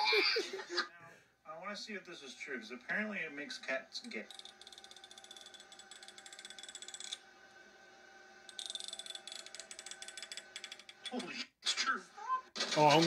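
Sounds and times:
comb teeth ratcheting clicks: 4.1s - 7.2s, 8.5s - 11.2s.

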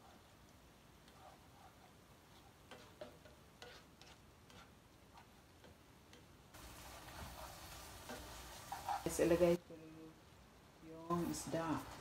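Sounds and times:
faint sizzling: 0.0s - 12.0s
spatula tapping a frying pan: 2.7s - 4.7s.

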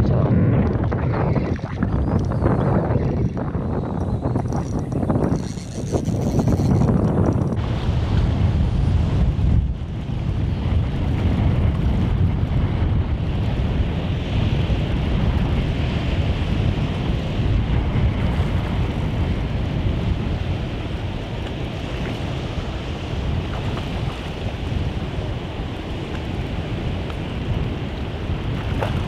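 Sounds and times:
wind buffeting microphone: 0.0s - 29.0s
shallow sea water washing: 0.1s - 7.6s.

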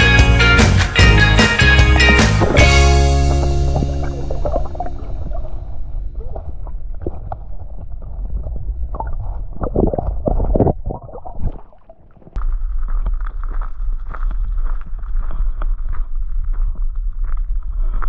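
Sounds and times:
wind noise on microphone: 1.9s - 18.0s
underwater sloshing and bubbling: 3.2s - 12.4s.

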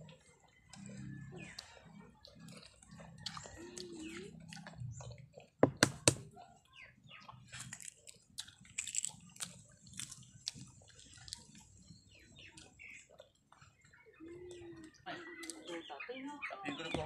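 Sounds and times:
chewing: 0.0s - 15.9s
eggshell crackling: 5.6s - 6.3s, 7.3s - 13.5s
sharp taps: 5.6s - 6.3s.

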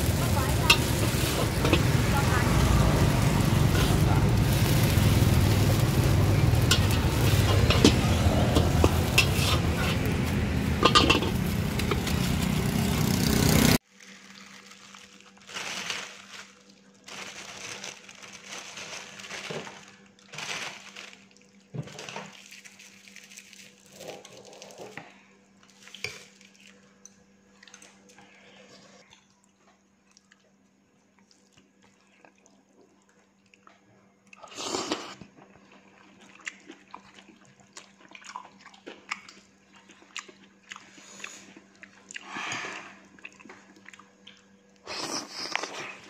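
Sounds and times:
utensil scraping metal wok: 0.0s - 13.8s.

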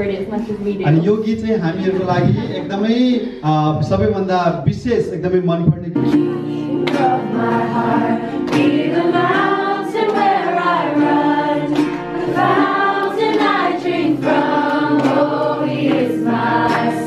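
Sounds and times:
group singing a worship song: 6.0s - 17.0s
strummed acoustic guitar: 6.0s - 17.0s.

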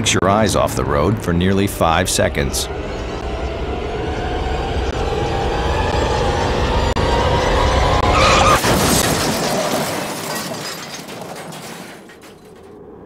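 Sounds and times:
tyre squeal: 7.9s - 8.7s
car crash impact: 8.0s - 12.7s
glass shattering: 8.3s - 12.7s.

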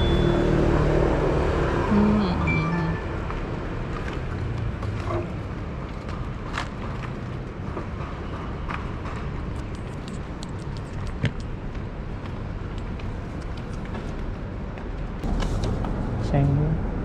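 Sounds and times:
low rumble of vehicles: 0.0s - 17.0s.

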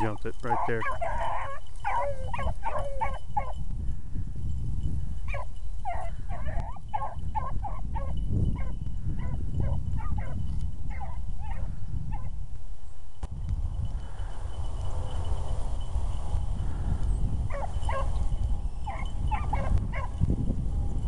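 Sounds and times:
hounds baying and yelping: 0.0s - 3.7s, 5.2s - 12.4s, 17.4s - 20.3s.

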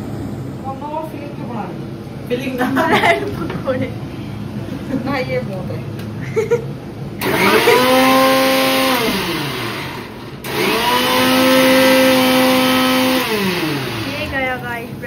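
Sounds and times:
mixer grinder humming: 7.1s - 15.0s.

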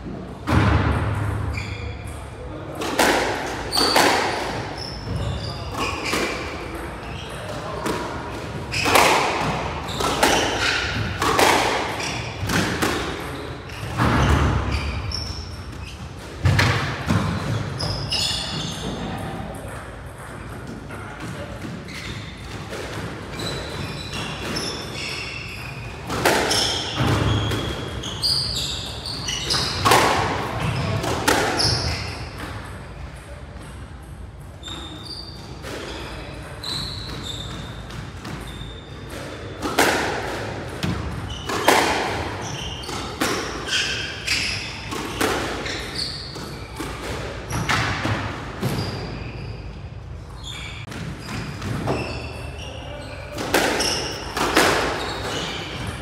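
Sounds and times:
shoes squeaking on wooden floor: 3.7s - 7.5s, 8.7s - 12.6s, 17.3s - 19.2s, 23.3s - 30.0s, 30.6s - 32.4s, 34.6s - 39.6s, 41.0s - 47.7s, 48.6s - 49.8s, 50.4s - 56.0s.

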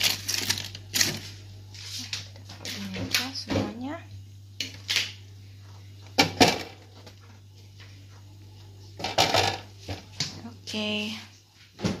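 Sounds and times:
steady low hum: 0.0s - 12.0s
household objects clattering: 9.0s - 10.1s.

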